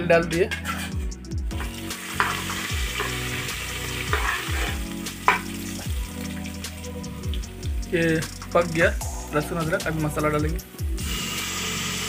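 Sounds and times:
spatula scraping pot: 0.5 - 1.2, 2.1 - 5.4
garlic sizzling in hot oil: 1.5 - 8.5, 11.0 - 12.0.

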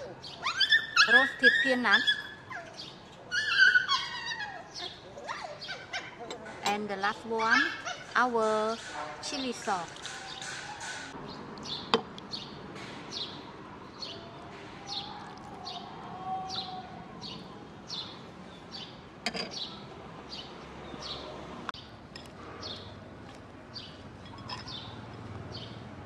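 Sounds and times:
bird chirping: 11.2 - 15.9
metal spoon clink: 24.2 - 25.3.

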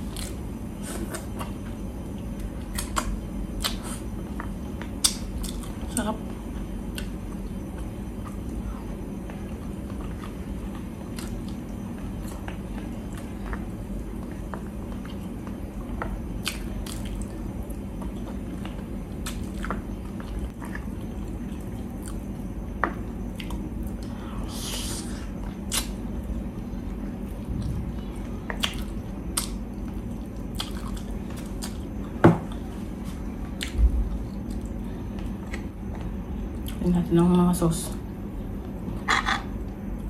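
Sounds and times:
person chewing wetly: 16.4 - 22.3, 23.3 - 24.2, 25.4 - 25.9, 27.4 - 31.9.

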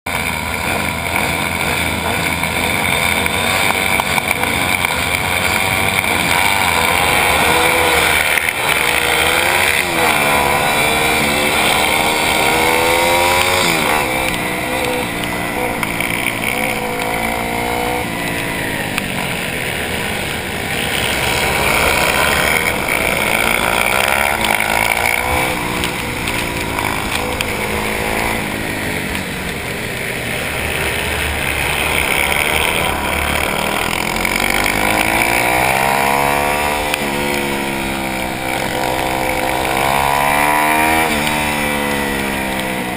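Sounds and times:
motorbike engine revving: 0.1 - 42.9.

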